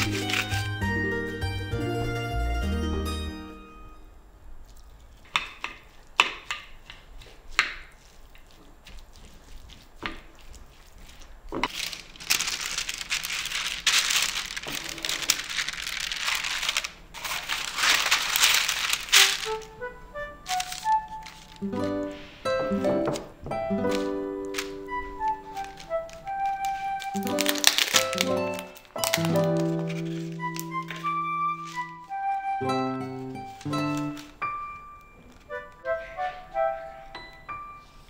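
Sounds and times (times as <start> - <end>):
parchment paper rustling: 0.0 - 1.0, 4.6 - 38.0
plucked string music: 0.0 - 4.0, 21.6 - 25.7, 26.7 - 34.4
wooden spoon stirring and scraping: 5.0 - 19.7.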